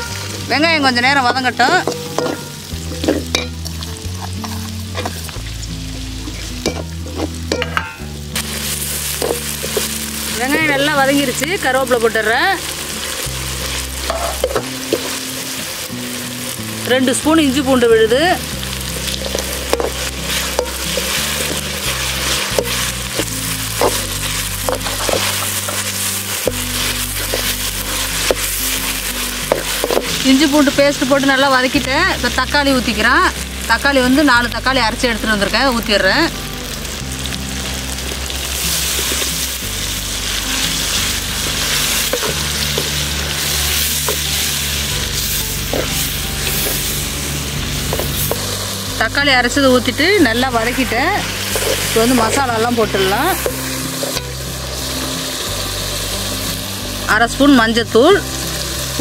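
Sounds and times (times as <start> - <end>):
onions sizzling in hot oil: 0.0 - 59.0
ladle clinking and scraping pan: 1.6 - 3.6, 6.2 - 8.1, 19.0 - 22.9, 23.8 - 28.5.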